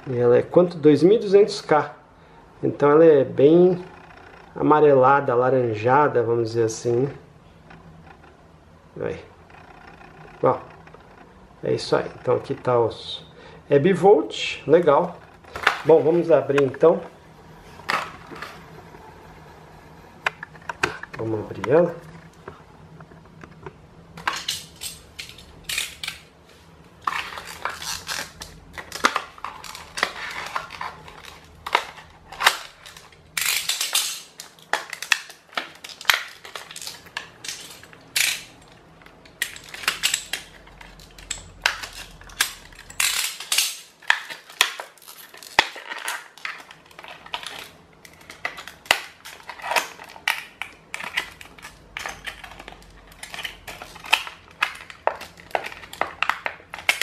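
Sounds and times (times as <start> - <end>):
plastic blister pack crackling: 24.1 - 57.0.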